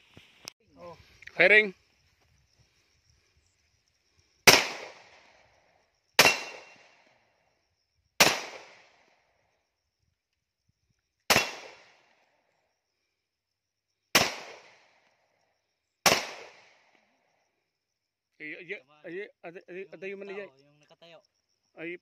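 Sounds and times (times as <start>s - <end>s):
pistol shots: 4.5s - 5.2s, 6.2s - 7.0s, 8.2s - 9.0s, 11.3s - 12.0s, 14.2s - 14.9s, 16.0s - 16.8s.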